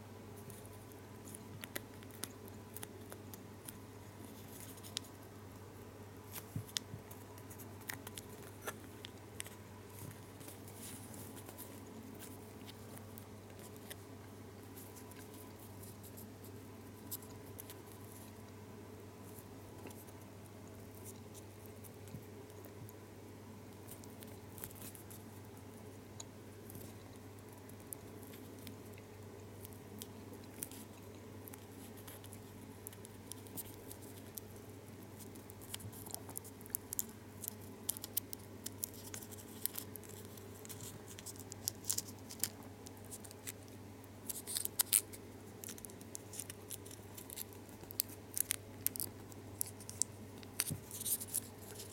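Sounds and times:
foil wrapper crinkling: 0:44.2 - 0:51.9.

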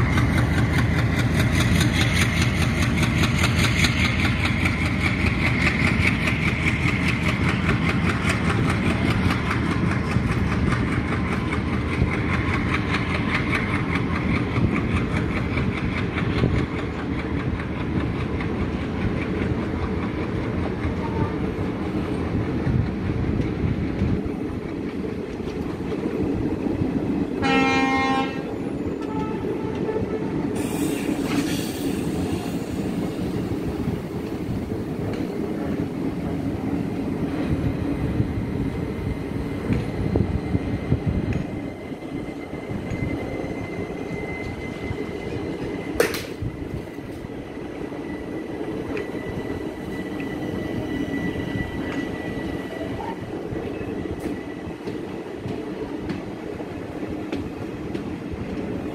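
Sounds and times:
train wheels rumbling on rails: 0:00.0 - 0:58.9
train horn: 0:20.9 - 0:21.6, 0:27.4 - 0:30.4.

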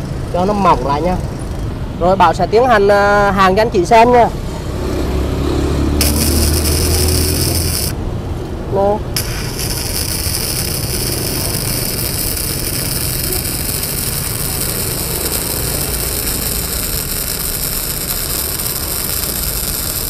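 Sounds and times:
welding arc crackling: 0:06.0 - 0:08.0, 0:09.2 - 0:20.0.

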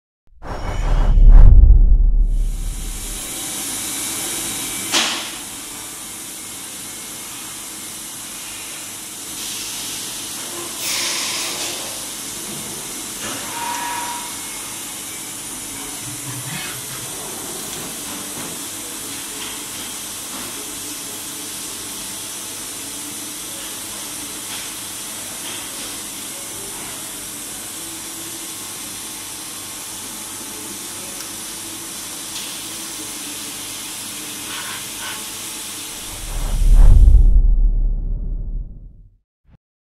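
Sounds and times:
rushes of noise: 0:00.4 - 0:03.3, 0:36.0 - 0:39.1.

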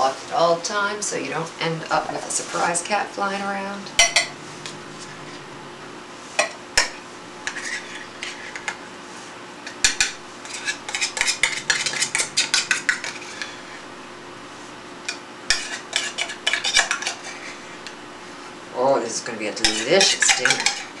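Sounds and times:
utensil scraping and clinking dish: 0:04.0 - 0:04.4, 0:06.4 - 0:08.8, 0:09.6 - 0:13.8, 0:15.0 - 0:18.0, 0:19.6 - 0:21.0.

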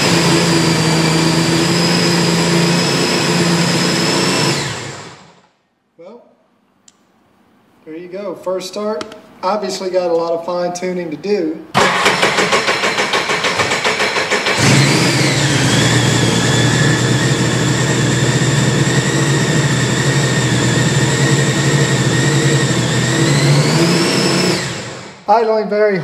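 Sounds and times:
engine running at high idle: 0:11.8 - 0:25.1.

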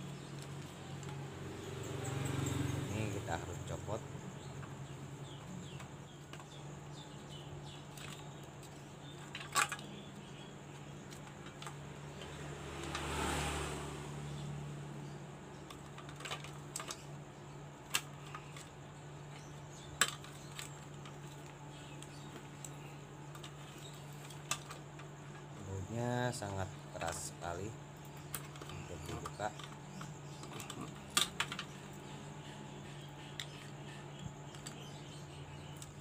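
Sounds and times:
plastic parts clicking and knocking: 0:04.6 - 0:11.9, 0:15.6 - 0:17.2, 0:17.8 - 0:25.4, 0:28.0 - 0:36.0.

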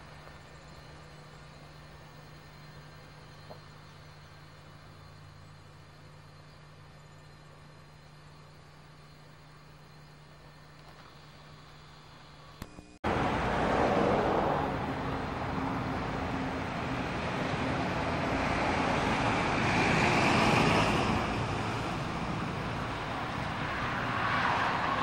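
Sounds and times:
cars and lorry driving past: 0:13.0 - 0:25.0.

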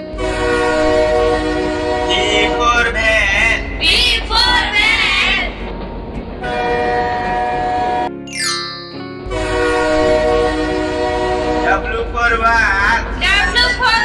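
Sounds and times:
train horn chord: 0:00.0 - 0:03.8, 0:06.4 - 0:08.2, 0:09.0 - 0:12.4.

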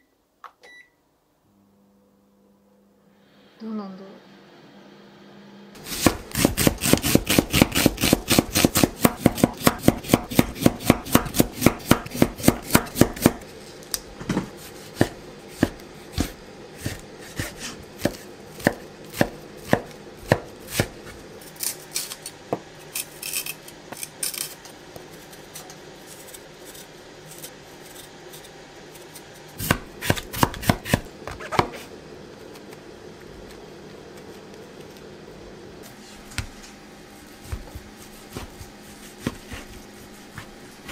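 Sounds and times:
knife chopping on wooden board: 0:05.8 - 0:13.4, 0:14.3 - 0:21.0, 0:29.6 - 0:31.8, 0:37.4 - 0:40.9.

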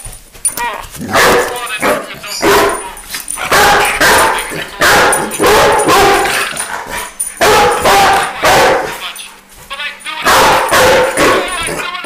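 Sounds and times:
dog barking: 0:01.1 - 0:09.0, 0:10.2 - 0:11.8.

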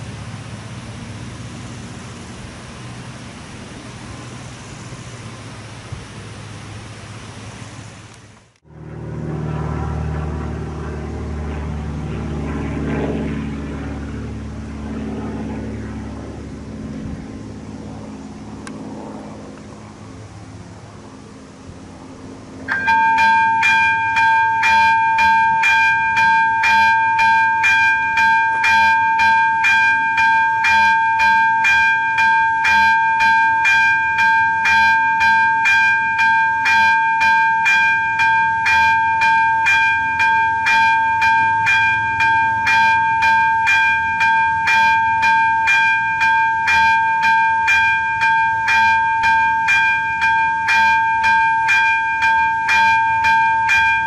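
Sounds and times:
level crossing bell ringing: 0:22.7 - 0:54.0.

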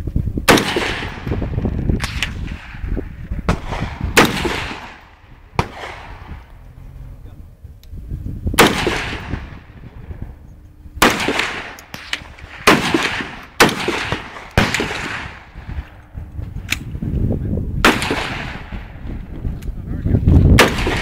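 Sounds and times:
fainter sharp cracks: 0:00.5 - 0:02.8, 0:03.5 - 0:06.6, 0:11.0 - 0:16.9, 0:17.8 - 0:18.8
rifle shots with ringing echo: 0:00.5 - 0:06.5, 0:08.6 - 0:16.9, 0:17.8 - 0:19.2, 0:20.5 - 0:21.0.

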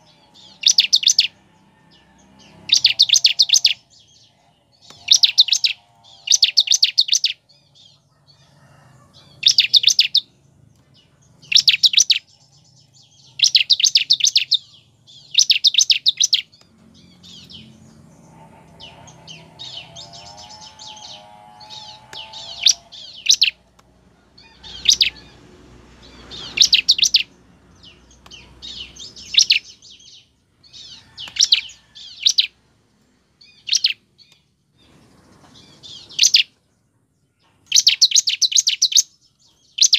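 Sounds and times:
bird trilling calls: 0:00.0 - 0:01.4, 0:02.4 - 0:08.0, 0:09.3 - 0:10.3, 0:11.4 - 0:12.3, 0:13.2 - 0:23.7, 0:24.4 - 0:25.4, 0:26.1 - 0:32.6, 0:33.4 - 0:34.3, 0:35.5 - 0:36.5, 0:37.7 - 0:39.1.

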